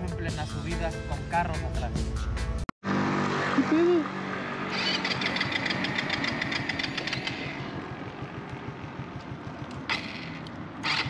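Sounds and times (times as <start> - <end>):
motorcycle engine idling: 4.7 - 11.0.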